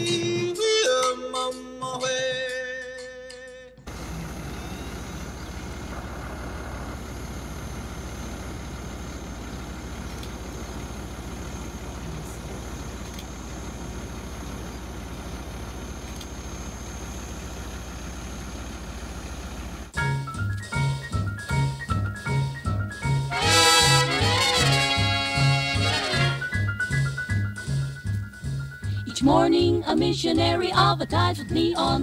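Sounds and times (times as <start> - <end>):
car engine idling: 3.8 - 29.5
faint clicks: 10.0 - 10.6, 12.9 - 13.4.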